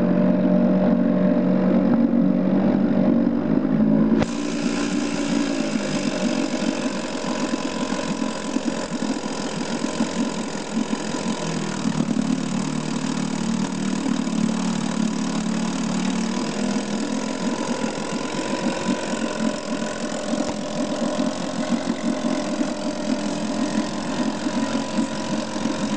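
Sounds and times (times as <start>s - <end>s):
outboard motor running: 0.0s - 25.9s
propeller churning water: 0.0s - 25.9s.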